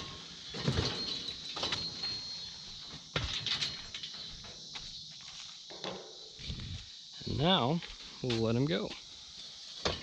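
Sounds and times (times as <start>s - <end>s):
insects chirring: 0.0s - 10.0s.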